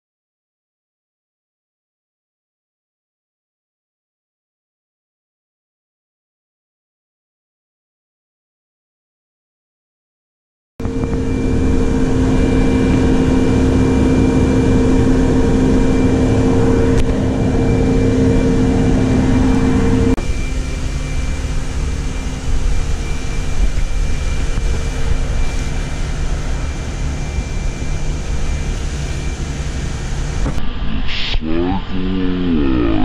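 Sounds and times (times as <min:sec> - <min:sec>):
machine hum: 0:10.8 - 0:33.0
rough noise: 0:10.8 - 0:33.0.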